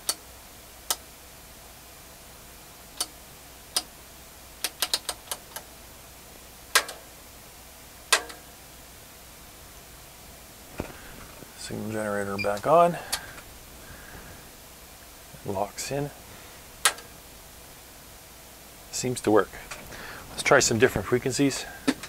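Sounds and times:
low steady hiss: 0:00.0 - 0:22.0
rotary switch clicking: 0:03.0 - 0:03.2, 0:04.6 - 0:05.7, 0:06.7 - 0:07.0, 0:16.8 - 0:17.1.

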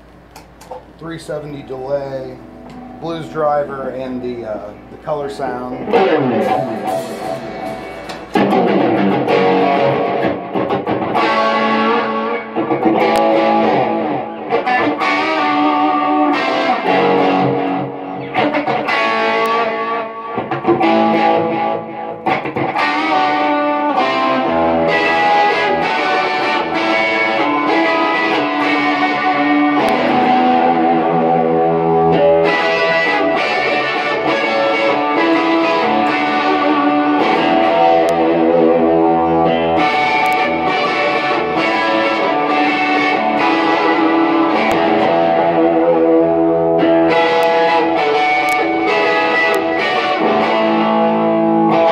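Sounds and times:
overdriven electric guitar lead: 0:00.0 - 0:51.9.

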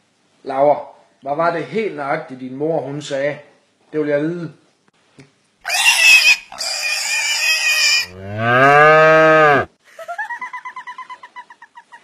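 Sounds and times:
cow mooing: 0:08.0 - 0:09.7.

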